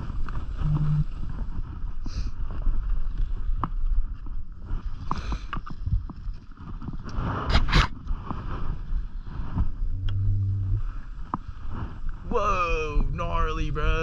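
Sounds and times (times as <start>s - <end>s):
skis scraping over snow: 0.0s - 10.0s, 10.8s - 12.6s
wind noise on microphone: 0.0s - 14.0s
skis skidding scrape: 6.6s - 9.8s.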